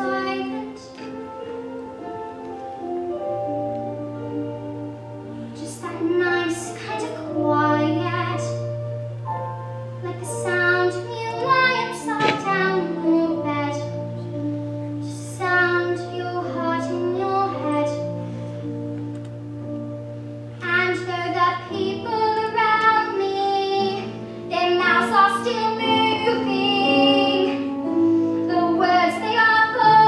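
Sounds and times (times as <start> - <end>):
child singing long notes: 10.0 - 14.3, 20.7 - 30.0.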